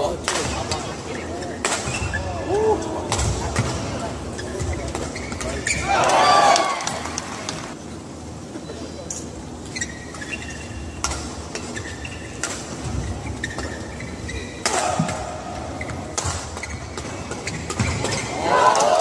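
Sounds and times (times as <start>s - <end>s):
shoe soles squeaking: 4.2s - 5.9s, 9.6s - 15.0s, 15.6s - 18.4s.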